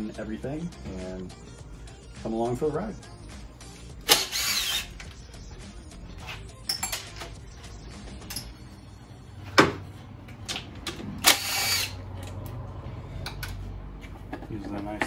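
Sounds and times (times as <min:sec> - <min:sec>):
cordless drill-driver running: 0:04.1 - 0:04.9, 0:11.3 - 0:12.0
tool and parts clicking and knocking: 0:09.6 - 0:12.6, 0:13.2 - 0:15.0.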